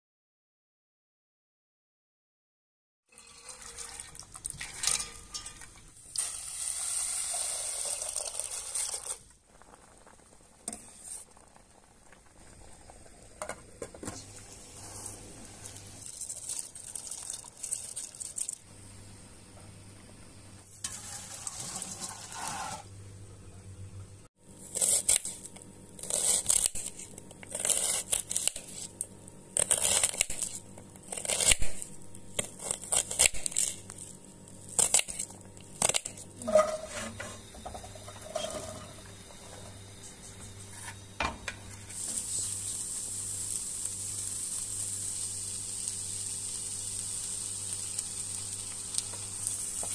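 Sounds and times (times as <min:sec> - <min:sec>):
rice poured into water: 0:03.1 - 0:04.9, 0:06.2 - 0:09.3, 0:14.8 - 0:18.6
onion sizzling in oil: 0:05.0 - 0:13.4, 0:20.6 - 0:22.9, 0:41.7 - 0:49.9.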